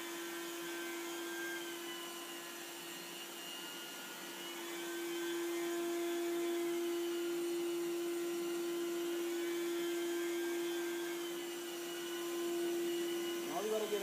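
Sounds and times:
carpet extraction machine humming: 0:11.4 - 0:14.0.

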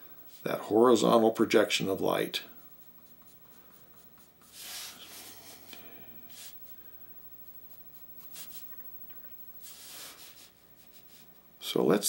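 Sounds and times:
pencil scratching on paper: 0:02.6 - 0:05.6, 0:07.4 - 0:08.8.

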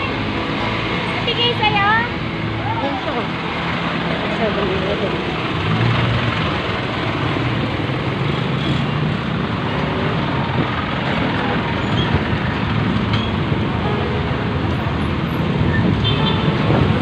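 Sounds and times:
street traffic passing: 0:00.0 - 0:17.0.

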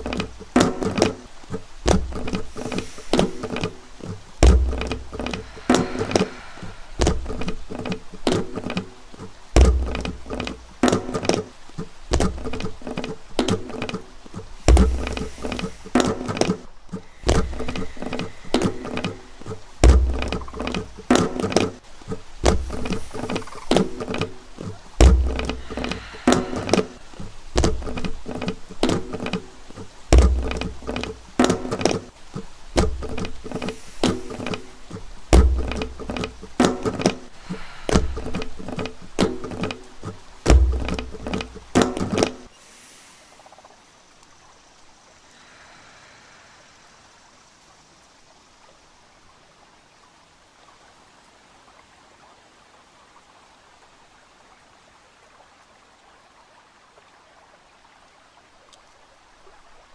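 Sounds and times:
deep thumps: 0:00.0 - 0:08.8, 0:09.4 - 0:11.1, 0:14.4 - 0:42.2
faint steady hiss: 0:00.0 - 0:59.9.

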